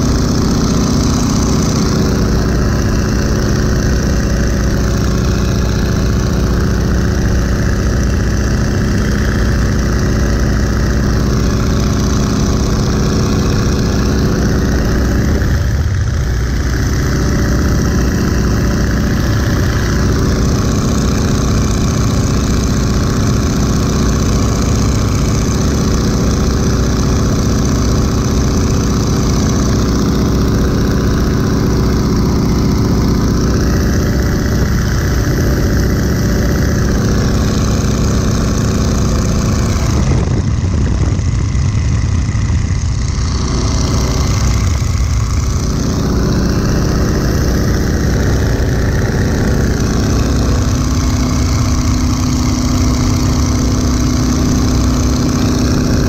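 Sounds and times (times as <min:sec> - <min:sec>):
propeller plane engine: 0:00.0 - 0:56.0
wind rush: 0:30.4 - 0:52.2.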